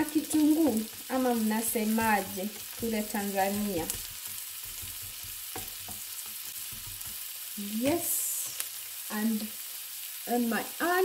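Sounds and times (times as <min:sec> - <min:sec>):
spatula scraping pan: 0:00.0 - 0:08.1
onions sizzling in a frying pan: 0:00.0 - 0:11.0.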